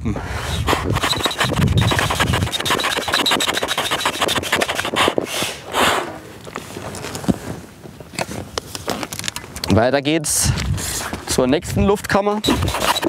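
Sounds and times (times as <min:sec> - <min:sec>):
rush of air: 0:00.0 - 0:03.0, 0:04.1 - 0:06.2
foot pump rubbing and crackling: 0:00.4 - 0:09.8, 0:12.0 - 0:13.0.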